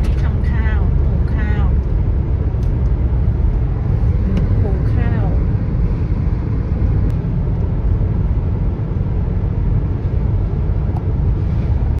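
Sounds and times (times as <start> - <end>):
car interior road rumble: 0.0 - 12.0.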